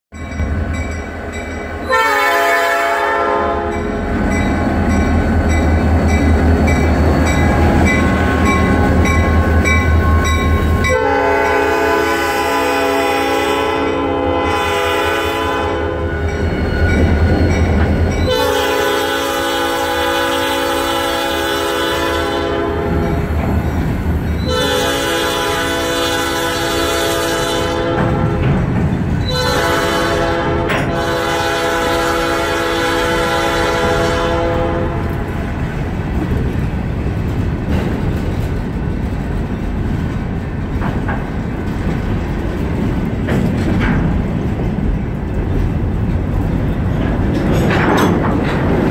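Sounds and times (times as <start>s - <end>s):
locomotive engine rumble: 0.2s - 48.9s
locomotive horn blasts: 1.8s - 4.0s, 7.9s - 16.4s, 18.2s - 23.2s, 24.4s - 28.6s, 29.2s - 35.3s.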